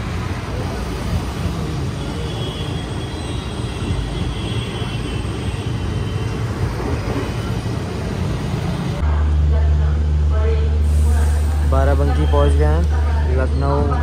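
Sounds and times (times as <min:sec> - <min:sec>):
train rumbling and rattling: 0:00.0 - 0:14.0.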